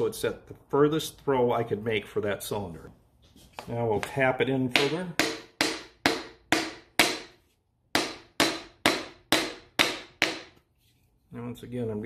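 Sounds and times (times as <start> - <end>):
hammer knocking on wood: 4.7 - 7.3, 8.0 - 10.6.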